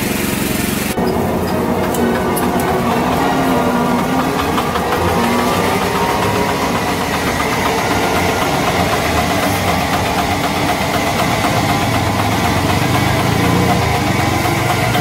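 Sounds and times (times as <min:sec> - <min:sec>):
grain mill running: 0:00.0 - 0:15.0.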